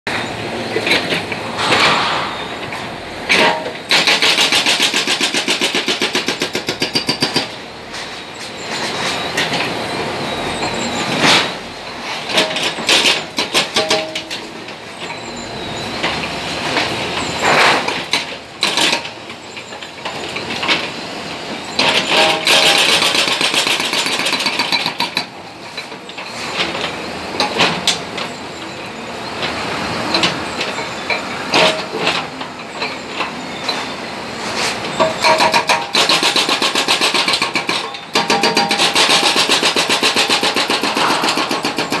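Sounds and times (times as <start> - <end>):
hydraulic breaker hammering concrete: 3.3 - 7.5, 21.8 - 25.4, 35.0 - 42.0.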